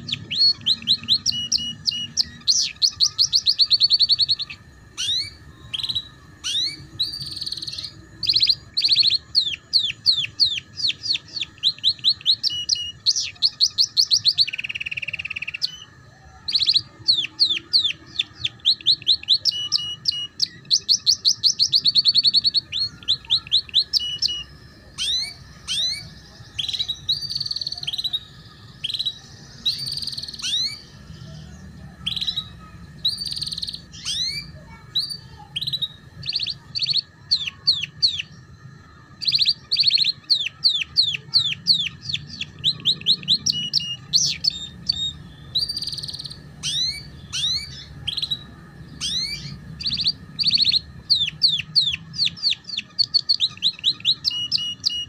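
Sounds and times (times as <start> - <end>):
canary singing trills: 0.0 - 55.0.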